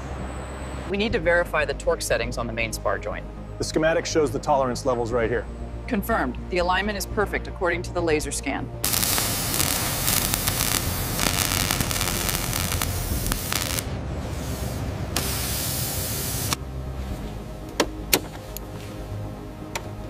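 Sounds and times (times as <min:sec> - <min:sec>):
welding torch hissing: 0:08.8 - 0:16.6.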